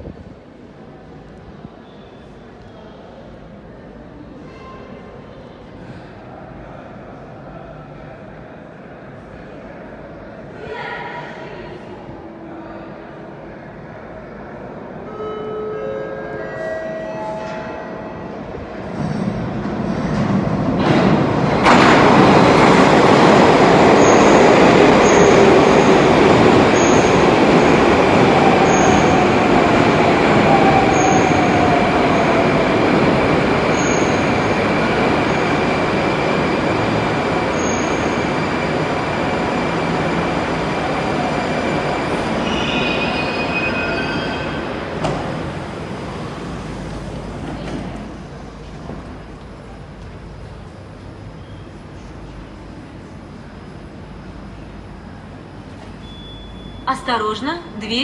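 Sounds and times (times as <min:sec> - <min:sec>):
train wheels rumbling on rail: 0:18.3 - 0:56.7
brake and wheel squeal: 0:56.0 - 0:56.8.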